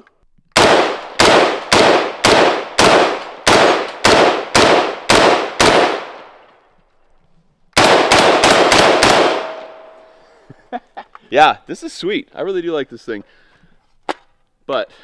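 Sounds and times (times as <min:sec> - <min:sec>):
rifle shots echoing: 0:00.6 - 0:06.5, 0:07.8 - 0:10.1.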